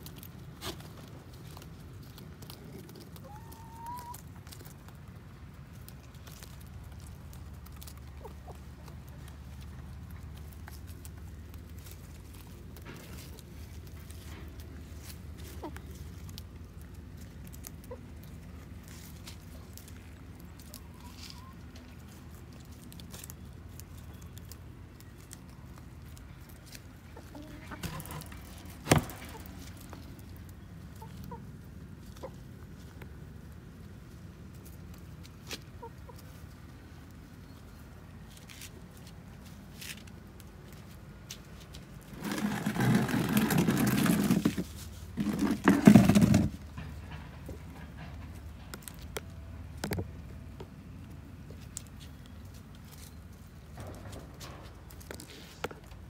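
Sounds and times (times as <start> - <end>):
hens clucking: 0.4 - 5.3, 5.9 - 22.2, 25.3 - 33.5, 34.9 - 37.9.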